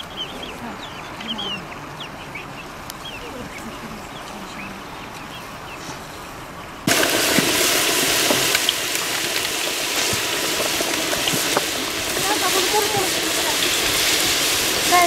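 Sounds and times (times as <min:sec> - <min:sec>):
dough sizzling in hot oil: 0:06.9 - 0:15.0.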